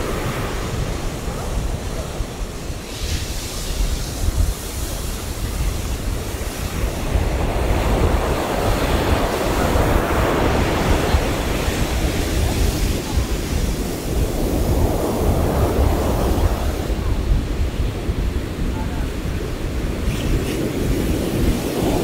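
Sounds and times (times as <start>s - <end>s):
ocean surf breaking on beach: 0.0s - 22.0s
wind rumbling on microphone: 0.0s - 22.0s.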